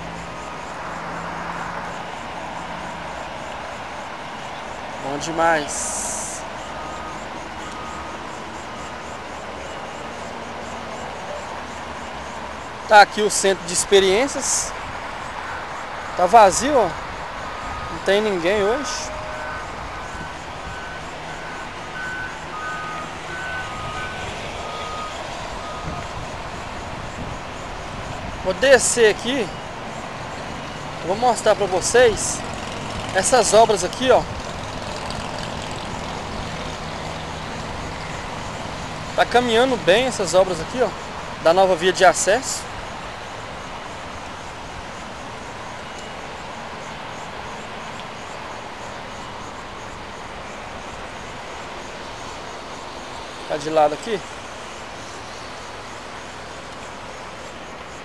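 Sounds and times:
engines and traffic noise: 0.0 - 58.0
truck back-up alarms beeping: 5.0 - 12.0, 15.3 - 42.0.

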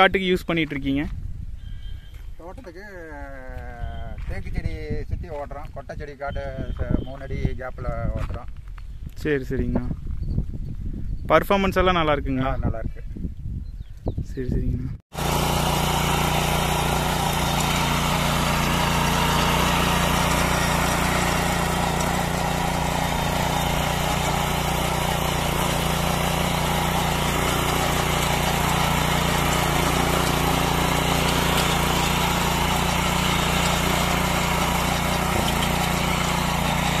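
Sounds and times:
power weeder engine running: 15.1 - 37.0.

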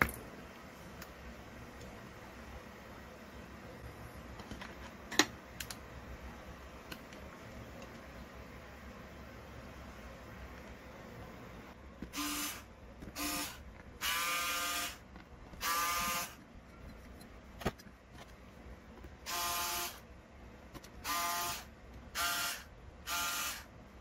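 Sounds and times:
electric screwdriver buzzing: 13.2 - 15.0, 15.6 - 16.4, 22.2 - 23.7.

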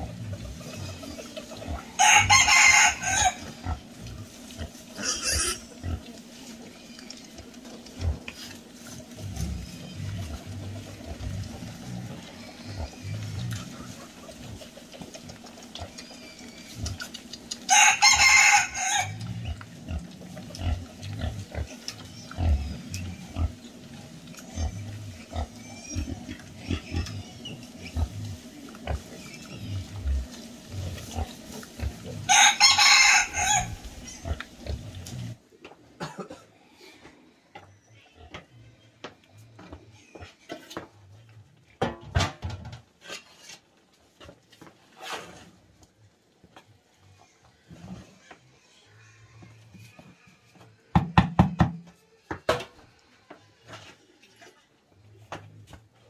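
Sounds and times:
piglets grunting: 0.0 - 7.0, 18.4 - 23.6
rooster crowing: 2.0 - 3.4, 17.7 - 19.2, 32.3 - 33.8.

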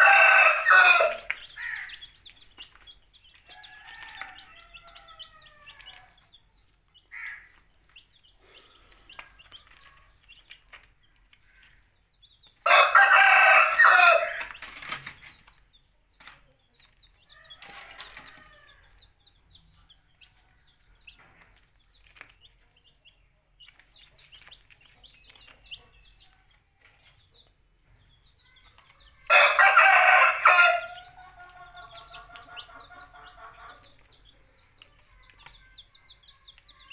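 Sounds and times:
adult chicken calling: 0.0 - 2.2, 7.0 - 7.6, 12.6 - 14.6, 29.2 - 33.9
chicks peeping: 0.0 - 36.9.

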